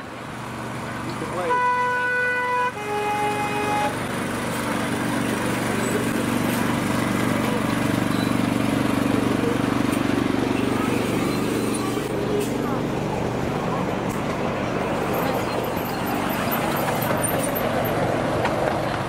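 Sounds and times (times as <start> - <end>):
locomotive engine running: 0.0 - 19.0
locomotive horn: 1.3 - 4.1.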